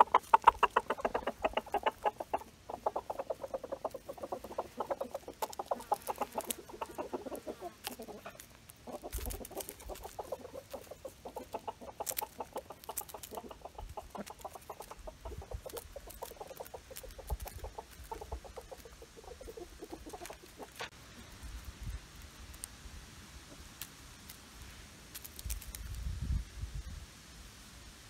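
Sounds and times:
sharp pecking clicks: 0.0s - 20.8s
chickens clucking softly: 0.0s - 21.4s.

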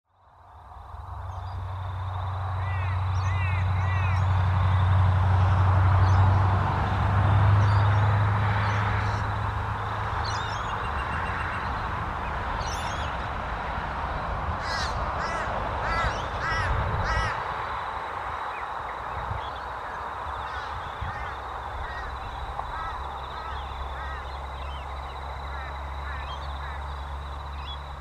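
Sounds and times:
crows cawing: 14.6s - 17.4s, 19.8s - 24.4s, 25.4s - 26.8s.

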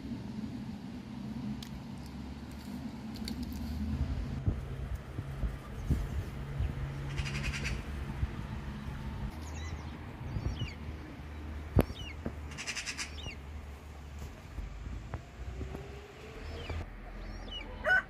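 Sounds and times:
birds chirping: 5.4s - 14.2s, 15.4s - 18.0s
bird rattling trills: 7.0s - 7.8s, 12.5s - 13.4s.

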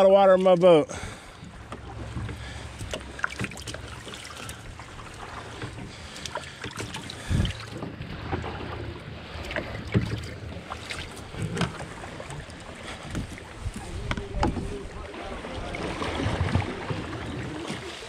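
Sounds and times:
paddle strokes: 0.0s - 18.0s
water splashing: 0.0s - 18.0s
knocks against canoe hull: 13.1s - 14.7s.

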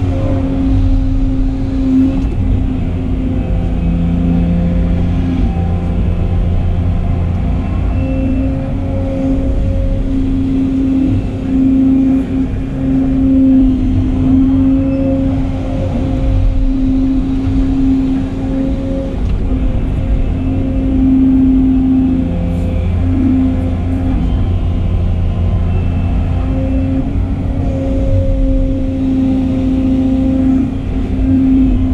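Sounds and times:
diesel engine under load: 0.0s - 31.9s
hydraulic pump hum: 0.0s - 31.9s.

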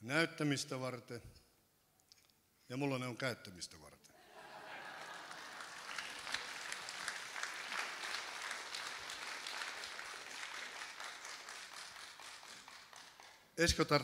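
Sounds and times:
audience applauding: 4.7s - 13.5s.

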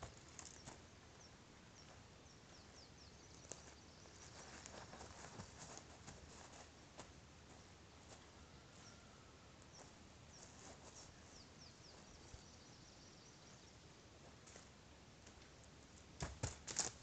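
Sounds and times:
faint bird chirps: 0.0s - 5.8s, 7.5s - 13.9s
footsteps crunching on forest floor: 3.3s - 9.1s.

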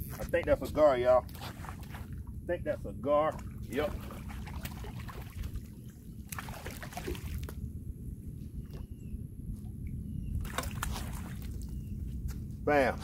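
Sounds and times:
steady low rumble: 0.0s - 13.0s
water sloshing and splashing: 1.1s - 2.4s, 3.2s - 7.7s, 10.4s - 11.9s.

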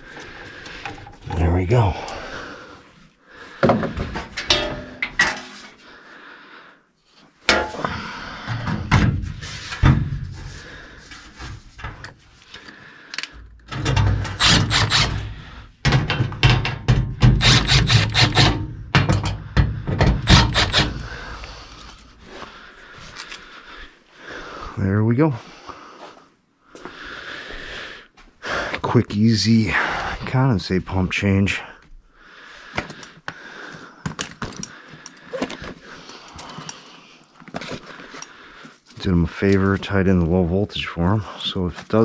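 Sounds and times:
rattling knocks: 15.8s - 20.9s.

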